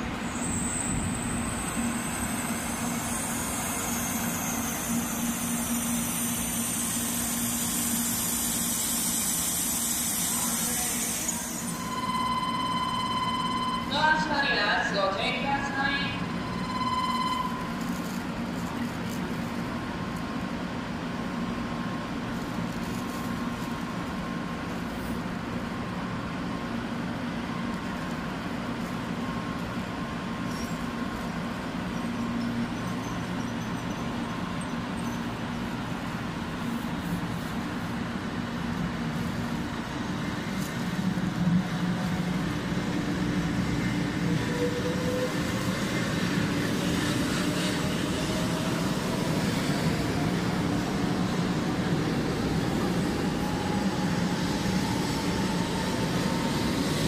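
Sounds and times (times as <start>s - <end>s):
train electric hum: 0.0s - 57.0s
train motor whine rising: 0.2s - 13.8s, 39.2s - 57.0s.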